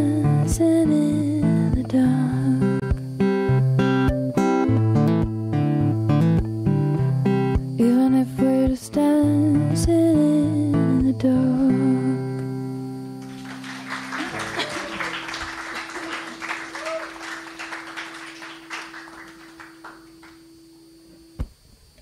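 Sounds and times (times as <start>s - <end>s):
acoustic guitar chord ringing: 0.0s - 8.4s, 10.3s - 21.1s
audience applause: 13.2s - 20.4s.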